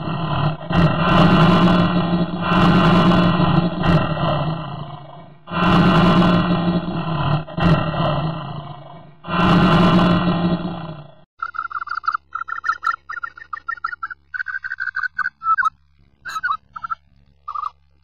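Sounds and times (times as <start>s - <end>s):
dinosaur roars: 0.0s - 11.2s
rapid pulsing animal call: 0.0s - 17.8s.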